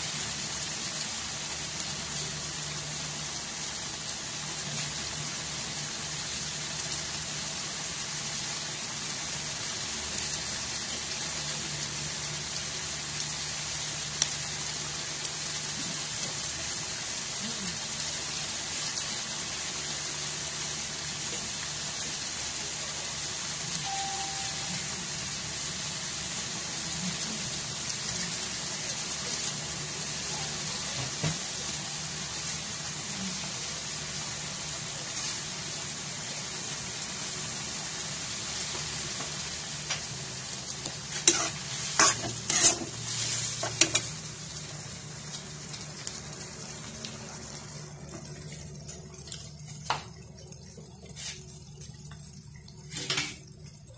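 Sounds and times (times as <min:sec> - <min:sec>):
chicken sizzling in a wok: 0:00.0 - 0:53.9
metal spoon scraping a pan: 0:41.1 - 0:44.1.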